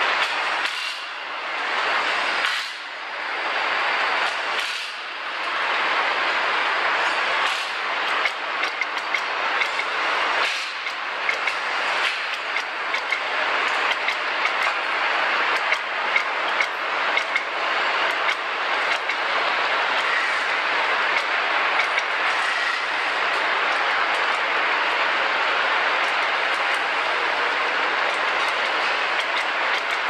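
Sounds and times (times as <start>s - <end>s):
machinery hiss and hum: 0.0s - 30.0s
metallic clicks and clanks: 7.4s - 14.9s, 15.6s - 17.5s, 18.1s - 19.2s, 21.1s - 22.1s, 28.0s - 30.0s.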